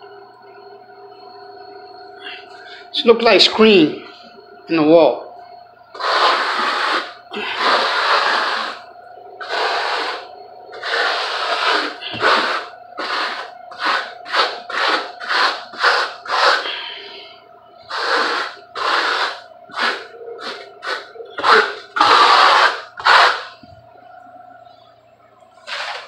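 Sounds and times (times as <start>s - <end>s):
trowel scraping plaster: 6.0s - 8.8s, 9.4s - 16.7s, 17.9s - 23.6s, 25.7s - 26.0s.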